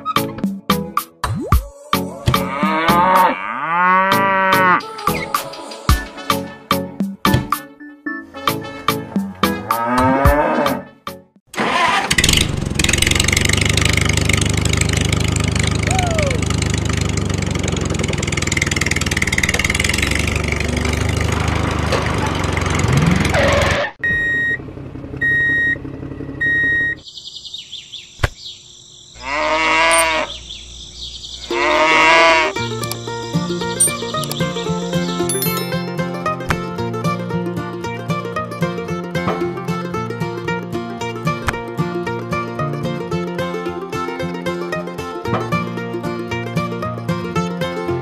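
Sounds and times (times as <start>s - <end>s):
cow mooing: 2.3s - 4.8s, 9.2s - 10.9s, 29.2s - 30.4s, 31.5s - 32.6s
tractor engine running: 11.5s - 23.8s, 24.6s - 27.0s, 32.5s - 37.4s
short beeps: 35.3s - 36.1s.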